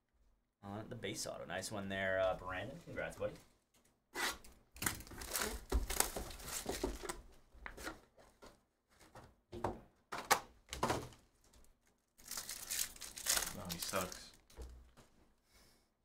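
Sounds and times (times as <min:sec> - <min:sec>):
foil pack crinkling: 0:05.0 - 0:07.2, 0:11.6 - 0:14.6
plastic shrink-wrap crinkling: 0:05.0 - 0:07.2, 0:11.3 - 0:15.0
cardboard rustling and knocking: 0:05.5 - 0:11.2.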